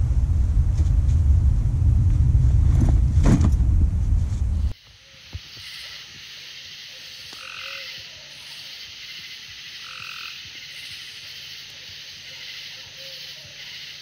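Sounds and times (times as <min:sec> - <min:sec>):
frogs calling: 0:04.7 - 0:14.0.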